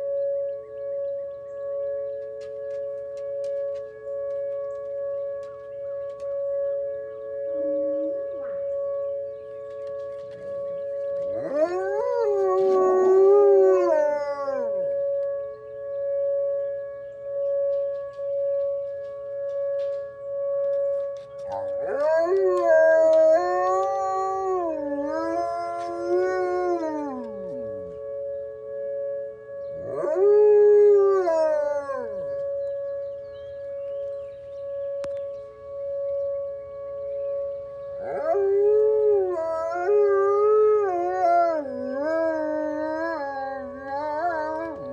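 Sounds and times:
two-tone warning siren wailing: 0.0s - 44.9s
wolf howling: 11.2s - 15.3s, 21.4s - 28.2s, 29.8s - 32.6s, 38.0s - 44.9s.

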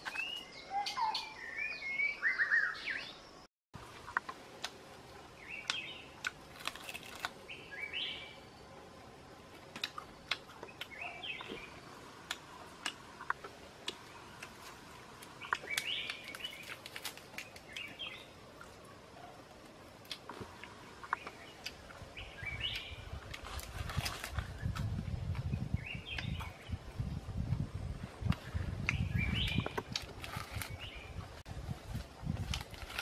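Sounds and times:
birds chirping: 0.0s - 3.5s, 5.3s - 8.9s, 9.7s - 23.3s, 25.5s - 27.3s, 28.4s - 31.3s.

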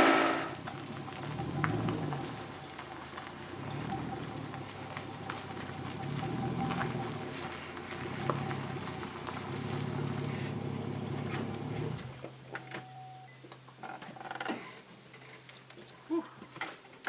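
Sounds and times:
pickup truck engine running: 0.5s - 12.2s.

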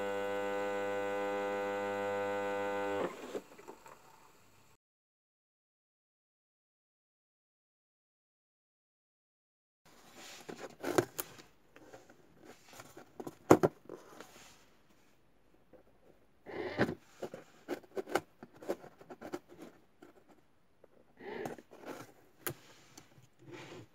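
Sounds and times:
cardboard rustling and scraping: 9.9s - 15.1s, 16.7s - 20.5s, 21.4s - 23.9s.

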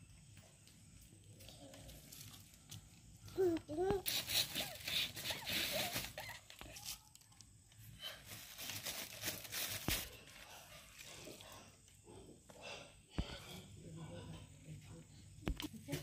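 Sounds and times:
paper plates rustling: 8.1s - 10.5s.

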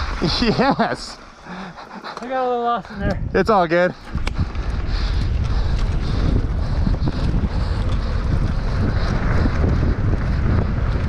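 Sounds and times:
tyres rumbling on packed dirt: 0.0s - 2.7s, 3.4s - 11.0s
bike clicks and rattles: 0.0s - 11.0s
wind buffeting microphone: 2.8s - 11.0s.

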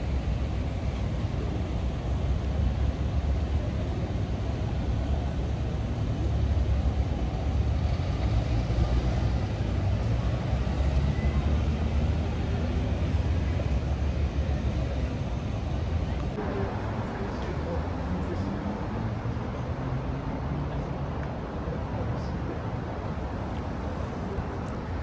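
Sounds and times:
vehicle rumble: 0.0s - 25.0s.

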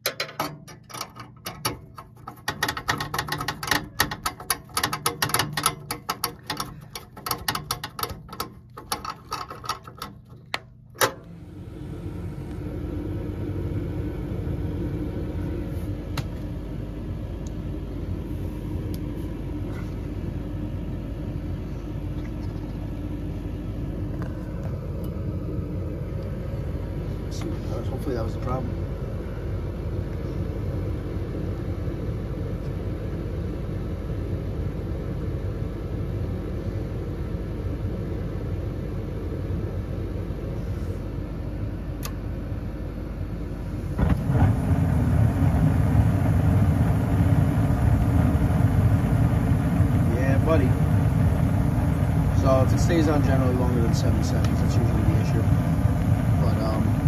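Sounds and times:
furnace motor humming: 0.0s - 57.0s
screwdriver scraping sheet metal: 0.1s - 10.2s.

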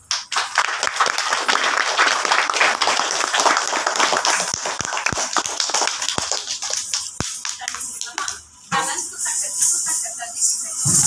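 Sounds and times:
audience applause: 0.0s - 8.3s.

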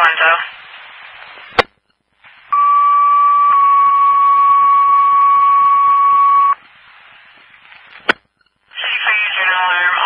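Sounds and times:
radio hiss: 0.0s - 4.7s, 6.0s - 10.0s
two-tone paging tone: 2.5s - 6.6s.

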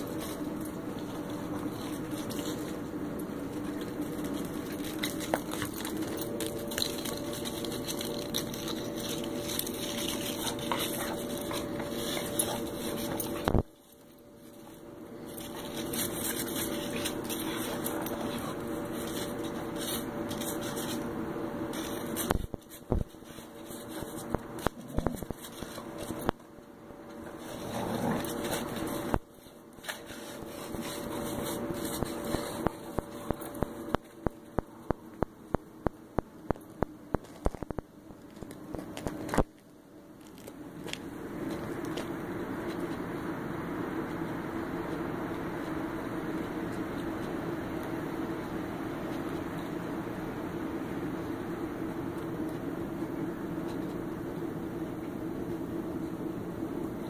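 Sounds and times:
steady background hum: 0.0s - 57.0s
dog digging in snow: 4.4s - 13.7s, 14.4s - 21.0s, 29.8s - 33.6s.

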